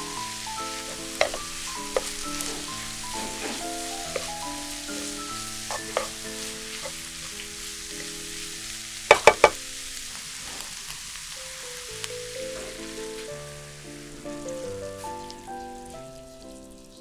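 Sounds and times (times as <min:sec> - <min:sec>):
background music: 0:00.0 - 0:09.4, 0:12.1 - 0:17.0
wooden spatula stirring: 0:00.0 - 0:10.9
vegetables sizzling in a frying pan: 0:00.0 - 0:17.0
sharp knocks: 0:09.1 - 0:09.6.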